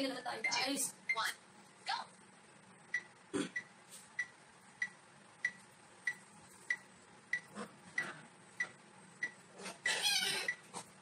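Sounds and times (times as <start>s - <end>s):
electronic timer ticks: 2.9s - 10.7s.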